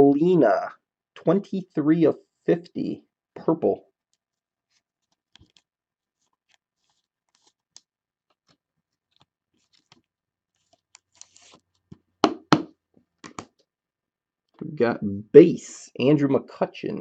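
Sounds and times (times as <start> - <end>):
card handling clicks and rustles: 6.2 - 12.0
card sliding scrape: 10.6 - 11.6
sharp plastic knocks: 11.9 - 13.6.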